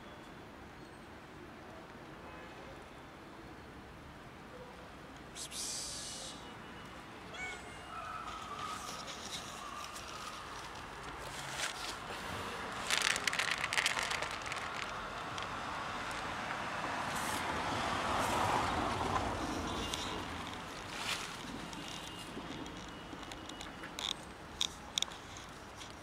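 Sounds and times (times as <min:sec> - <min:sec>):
kibble pouring into plastic box: 0:12.8 - 0:15.6.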